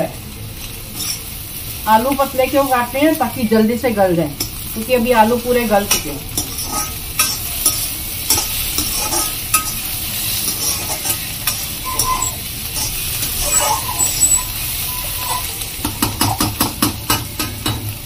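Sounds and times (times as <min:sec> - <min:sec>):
vegetables sizzling: 0:00.0 - 0:18.0
spatula scraping a pan: 0:00.6 - 0:01.3, 0:05.9 - 0:16.5.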